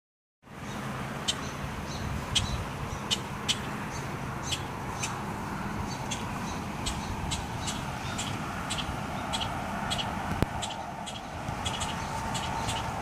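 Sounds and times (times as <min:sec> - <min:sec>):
sharp bird chirps: 0:05.9 - 0:13.0.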